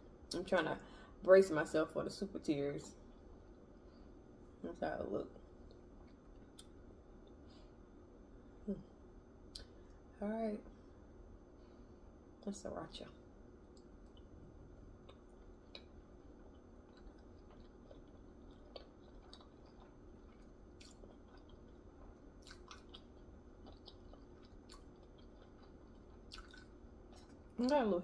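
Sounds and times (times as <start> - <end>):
close-up chewing: 13.7 - 27.8.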